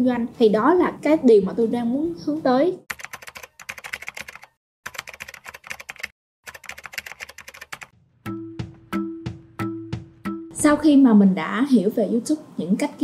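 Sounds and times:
rapid keyboard typing: 2.9s - 7.9s.

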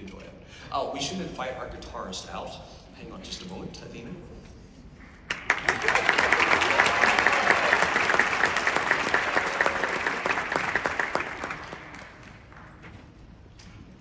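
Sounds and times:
audience applauding: 5.3s - 12.8s.

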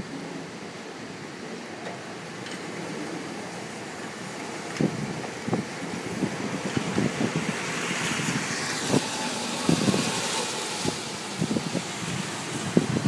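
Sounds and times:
strong wind gusts: 0.0s - 13.0s
wind buffeting microphone: 2.7s - 13.0s.

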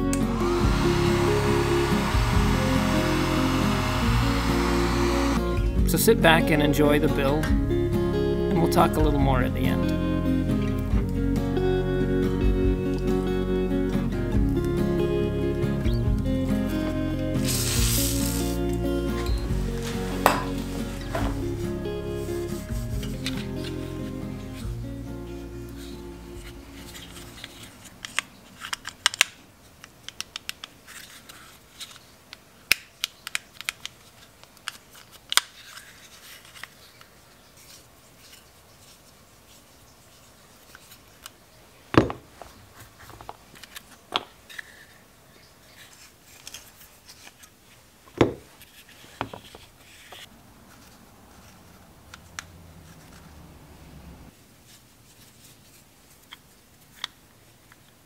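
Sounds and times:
loud plastic snaps: 28.1s - 30.8s, 32.6s - 35.7s.

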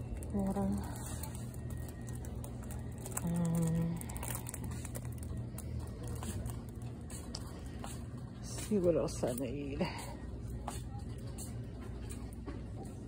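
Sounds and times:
low hum of shop background: 0.0s - 13.0s.

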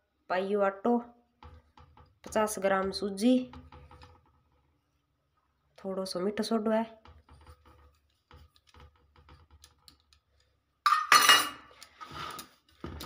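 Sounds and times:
hands mixing flour on steel plate: 6.4s - 10.5s.

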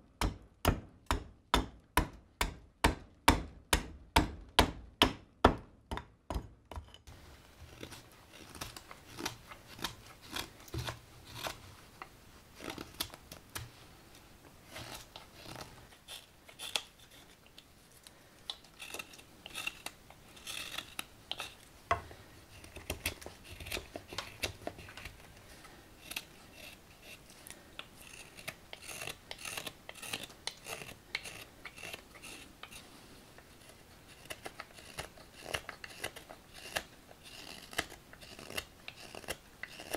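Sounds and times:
knife slicing wood shavings: 7.4s - 11.6s, 14.6s - 17.4s.

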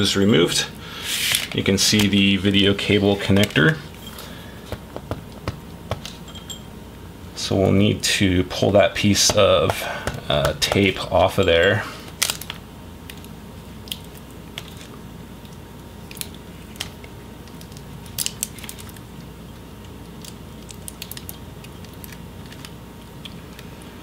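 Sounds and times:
tape peeling crackles: 12.1s - 23.8s.

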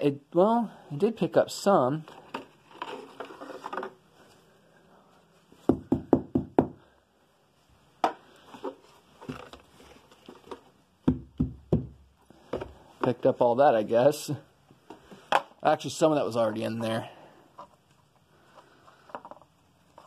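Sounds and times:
plastic vacuum parts knocking: 10.4s - 13.2s.

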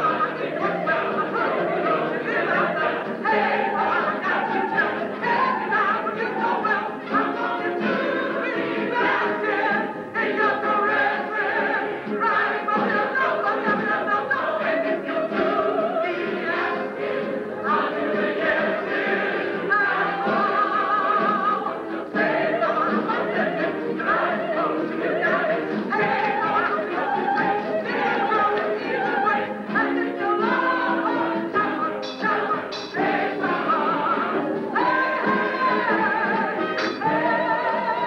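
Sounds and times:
chorus singing with vibrato: 0.0s - 38.0s.

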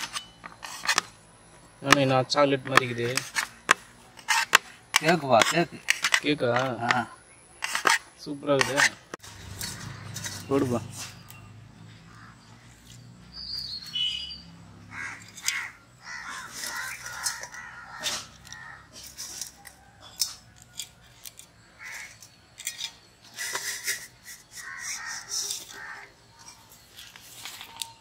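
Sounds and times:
crows cawing: 11.9s - 12.8s, 14.8s - 19.1s, 21.8s - 22.2s, 24.5s - 26.4s.

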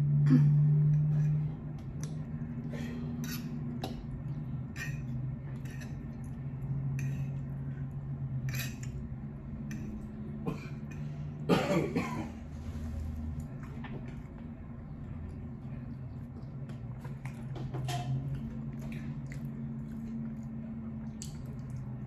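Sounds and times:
chewing: 1.0s - 8.0s, 13.1s - 22.0s
fork scraping on a plate: 3.2s - 3.6s, 4.7s - 6.0s, 8.4s - 9.0s.

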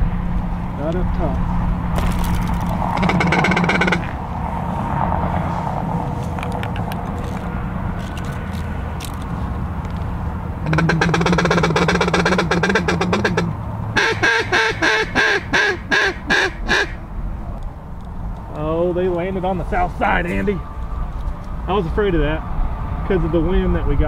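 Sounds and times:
duck call chattering: 2.9s - 4.2s, 10.6s - 17.0s
duck call quacks: 3.0s - 4.2s, 10.6s - 17.0s.

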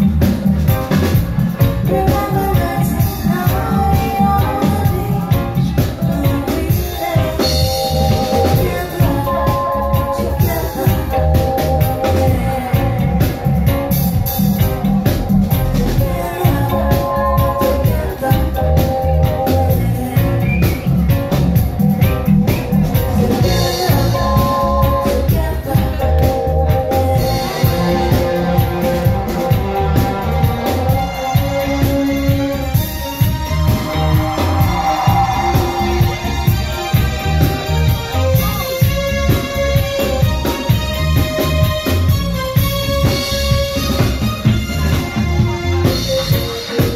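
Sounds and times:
bass and drum groove: 0.0s - 46.9s
live reggae band: 0.0s - 46.9s
sustained keyboard chords: 0.0s - 46.9s.

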